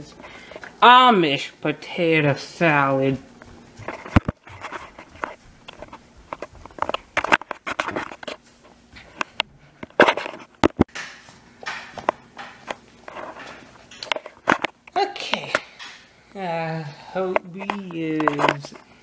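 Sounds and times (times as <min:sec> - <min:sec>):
knocks clicks and rustles on table: 0:03.8 - 0:08.4, 0:09.0 - 0:16.1.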